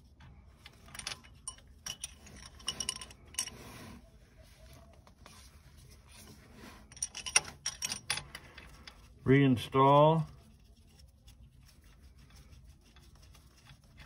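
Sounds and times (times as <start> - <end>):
metal tools clicking and clinking: 0.6 - 3.7, 6.9 - 9.0.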